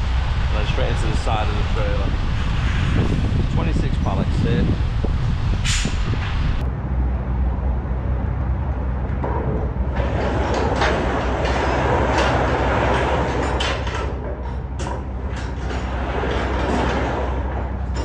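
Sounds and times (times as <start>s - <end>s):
steady low hum: 0.0s - 18.0s
curtain runners rolling and clattering: 9.9s - 18.0s.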